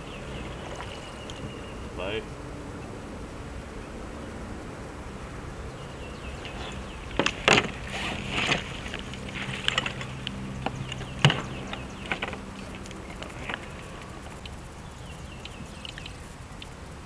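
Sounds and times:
steady low hum: 0:00.0 - 0:17.0
fish splashing: 0:06.4 - 0:14.8.

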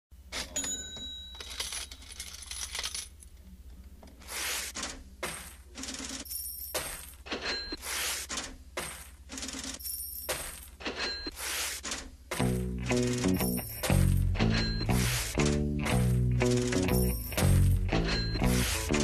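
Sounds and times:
cash register rings: 0:00.3 - 0:03.0, 0:05.3 - 0:19.0
clinking coins: 0:00.4 - 0:03.3, 0:05.3 - 0:07.8, 0:08.8 - 0:11.3, 0:12.8 - 0:19.0.

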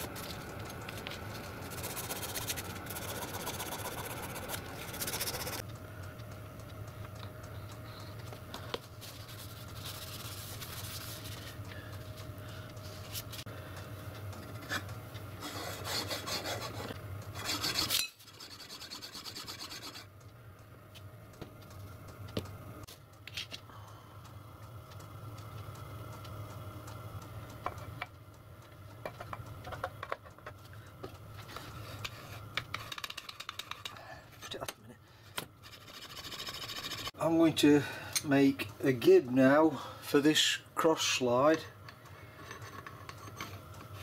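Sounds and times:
metal being scoured by hand: 0:15.4 - 0:20.1.

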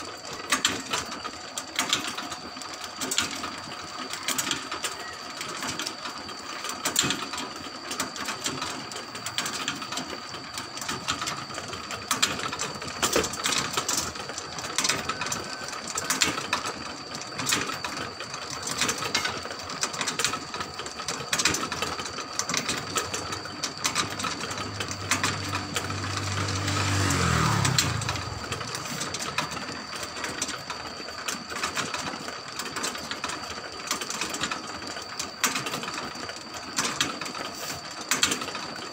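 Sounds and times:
rotisserie gears clattering: 0:18.6 - 0:34.5
faint high whine: 0:20.4 - 0:32.7
low drone: 0:23.8 - 0:29.9.

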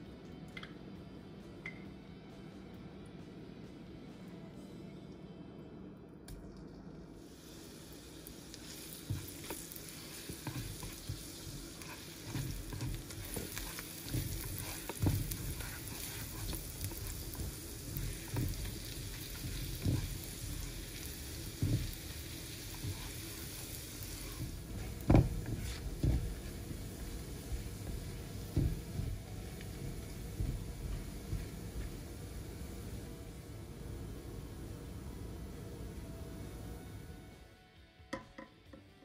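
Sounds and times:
garlic sizzling in pan: 0:07.2 - 0:35.6
spatula scraping and knocking pan: 0:09.0 - 0:32.1.

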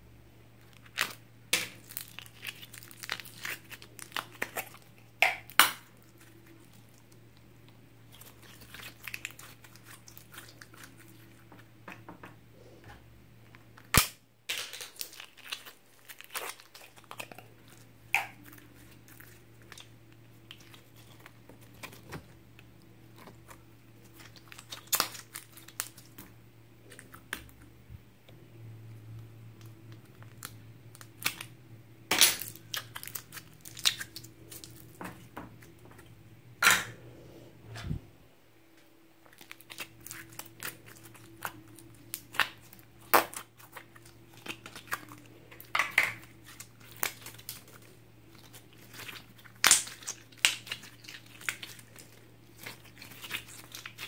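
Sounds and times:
slime squishing: 0:00.5 - 0:11.8, 0:14.6 - 0:27.7, 0:32.2 - 0:36.2, 0:39.2 - 0:54.0
plastic containers crinkling: 0:00.6 - 0:11.7.

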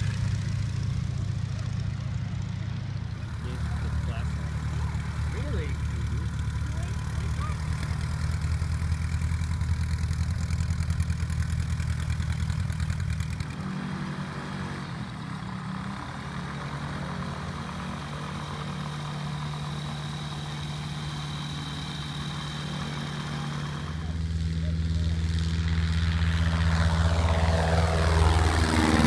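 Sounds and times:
small airplane engine running: 0:00.0 - 0:29.0
ultralight engine idling: 0:00.0 - 0:29.0.

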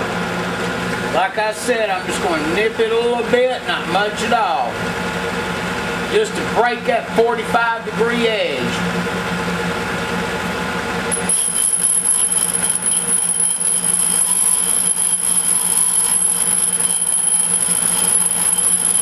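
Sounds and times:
machine humming: 0:00.0 - 0:19.0
grinding stone high-pitched whine: 0:11.1 - 0:19.0.

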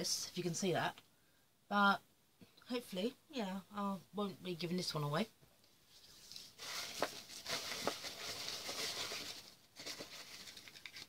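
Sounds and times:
packaging rustling and crinkling: 0:06.1 - 0:11.0.

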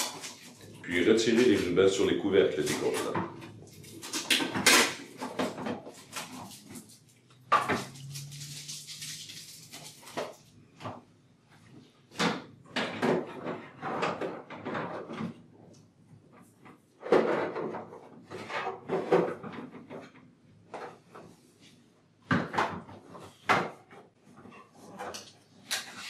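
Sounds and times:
plastic canisters clicking and knocking: 0:00.0 - 0:08.4, 0:12.1 - 0:15.5, 0:22.2 - 0:26.0.

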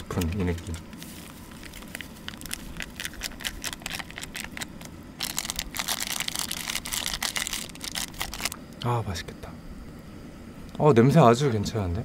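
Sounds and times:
plastic packet crinkling: 0:00.0 - 0:08.6.

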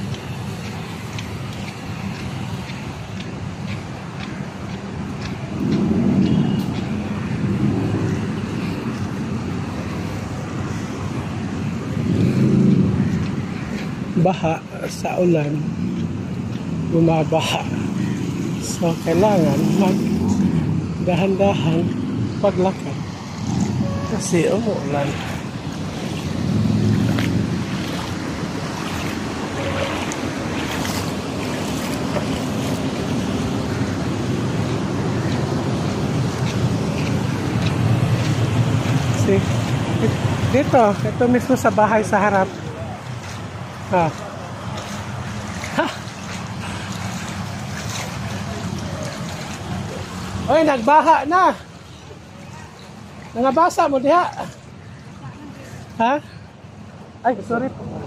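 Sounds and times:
footsteps splashing through water: 0:00.0 - 0:56.8
road traffic rumble: 0:00.0 - 0:58.0
wind noise on microphone: 0:23.2 - 0:24.3.

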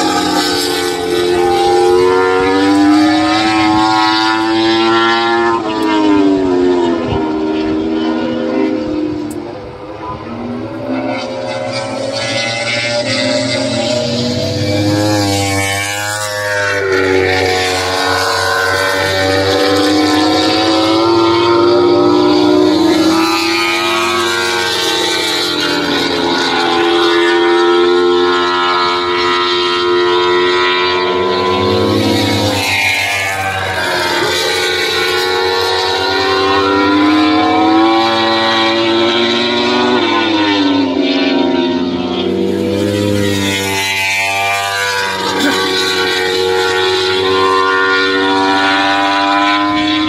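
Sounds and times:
race bike engine at high revs: 0:00.0 - 0:50.0.

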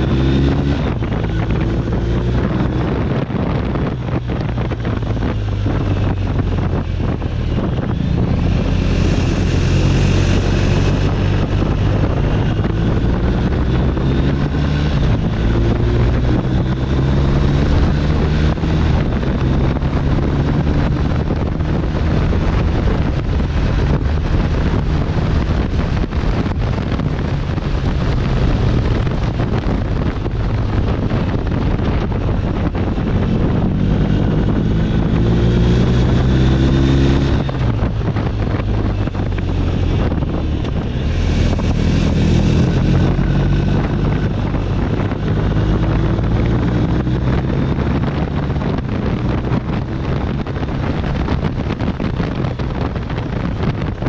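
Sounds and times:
motorcycle engine running: 0:00.0 - 0:54.0
wind buffeting the microphone: 0:00.0 - 0:54.0.

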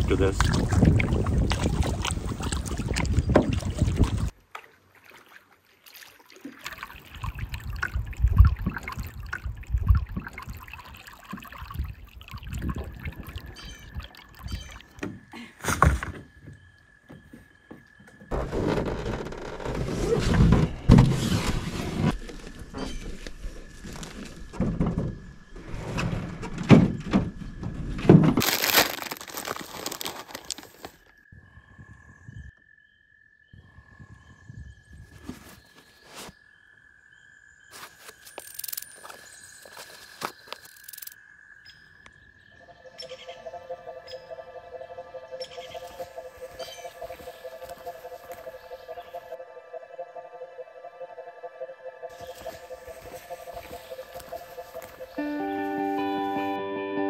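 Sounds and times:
wind on the microphone: 0:00.0 - 0:04.3, 0:07.3 - 0:10.7, 0:11.6 - 0:14.7, 0:33.6 - 0:35.3
water: 0:00.0 - 0:15.5, 0:42.6 - 0:49.8, 0:52.1 - 0:56.1
canoe paddling: 0:00.0 - 0:25.6, 0:45.6 - 0:49.4, 0:52.1 - 0:56.6
knocks and rustles on wooden dock: 0:15.0 - 0:28.4
plastic bag crinkling: 0:28.4 - 0:31.0.

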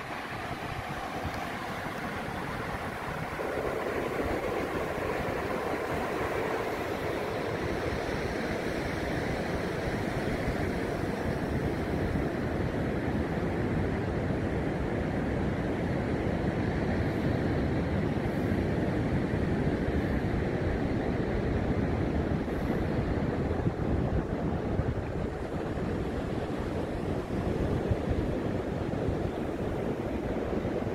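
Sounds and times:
ocean surf breaking on beach: 0:00.0 - 0:30.9
wind blowing across microphone: 0:00.0 - 0:30.9.

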